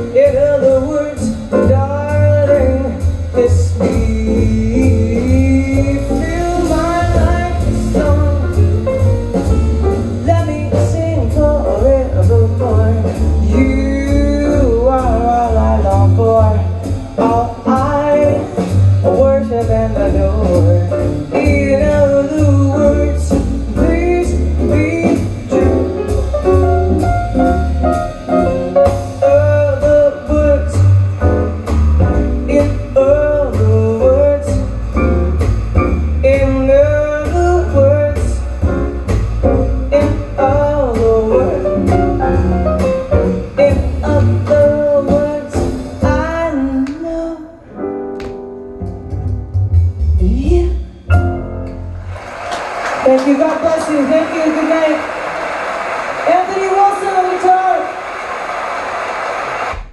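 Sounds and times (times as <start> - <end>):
pulsing bass: 0.0 - 46.6
person singing jazz: 0.0 - 52.0.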